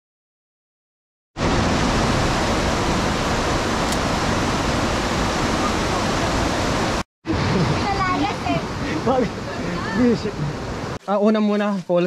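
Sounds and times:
river rapids roaring: 0:01.4 - 0:11.0.

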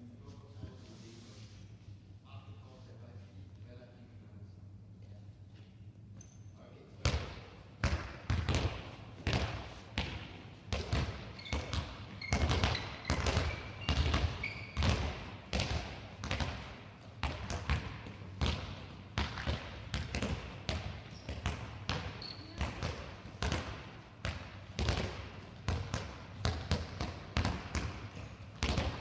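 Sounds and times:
balls bouncing in a hall: 0:04.9 - 0:29.0
shoe squeaks: 0:06.2 - 0:06.6, 0:11.3 - 0:14.9, 0:21.1 - 0:21.4, 0:22.1 - 0:22.6.

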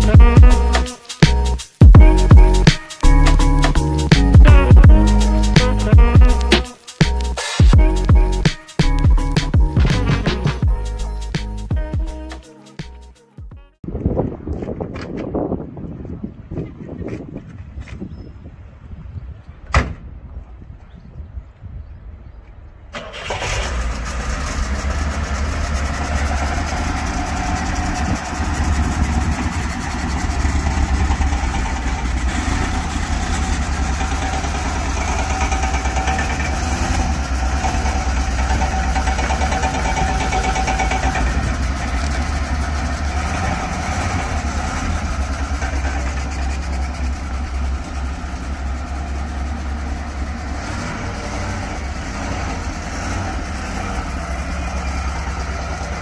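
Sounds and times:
car engine starting and idling: 0:22.8 - 0:56.0.

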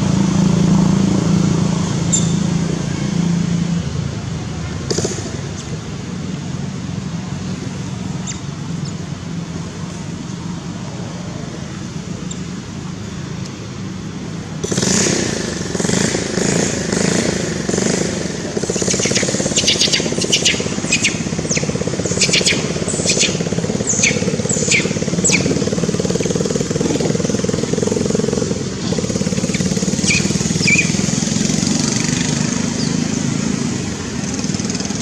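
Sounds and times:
vehicle engine humming: 0:00.0 - 0:35.0
rapid buzz: 0:14.2 - 0:35.0
sharp high clicks: 0:18.6 - 0:27.0.

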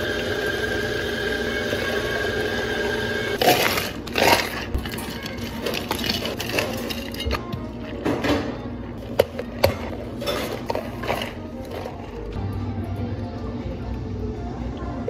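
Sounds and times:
ice cubes clattering in cups: 0:03.4 - 0:07.4.

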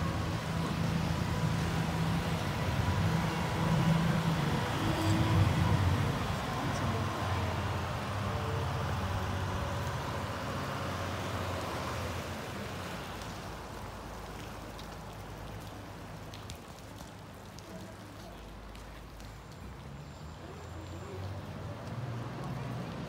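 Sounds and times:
boat engine humming: 0:00.0 - 0:13.8
propeller churning water: 0:00.0 - 0:19.8.

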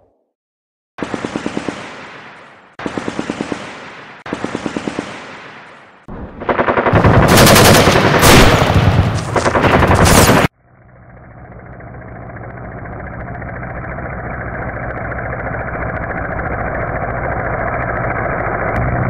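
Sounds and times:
machine-gun fire: 0:01.0 - 0:10.5.

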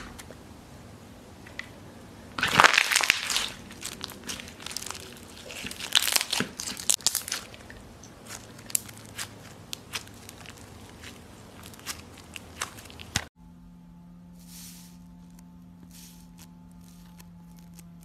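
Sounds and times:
slime crackling and squelching: 0:02.4 - 0:13.3.

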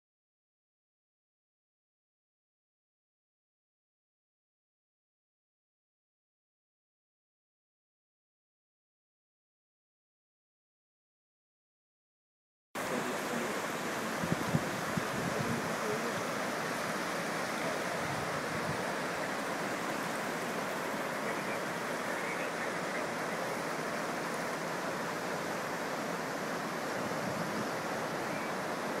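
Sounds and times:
river rushing: 0:12.8 - 0:29.0.

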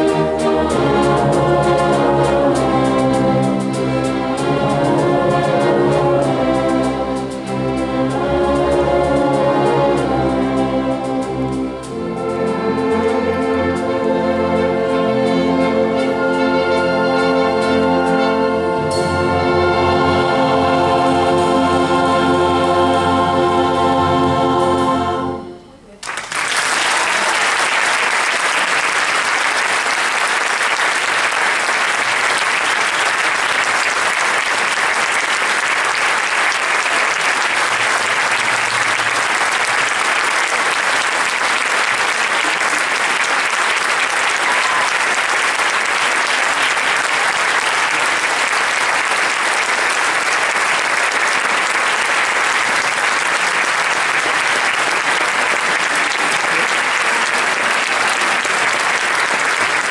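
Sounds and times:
orchestra and choir chord: 0:00.0 - 0:25.9
audience applause: 0:26.0 - 0:59.9.

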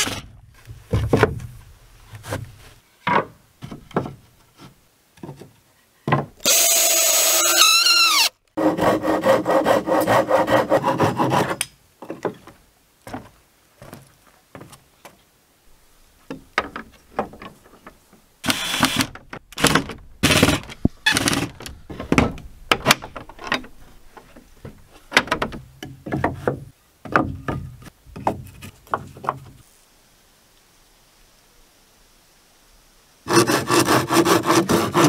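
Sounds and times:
wooden boards knocking and thudding: 0:00.0 - 0:04.2, 0:05.2 - 0:06.4, 0:16.3 - 0:18.0, 0:18.8 - 0:29.6.

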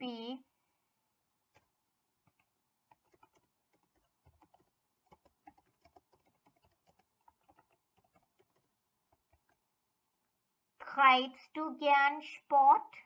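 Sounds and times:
typing on computer keyboard: 0:01.5 - 0:09.6.

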